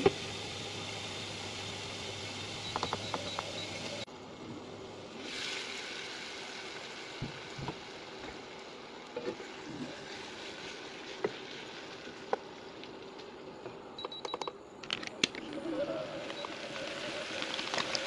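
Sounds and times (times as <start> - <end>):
chicken sizzling in a wok: 0.0 - 2.7, 5.0 - 12.7, 16.2 - 18.0.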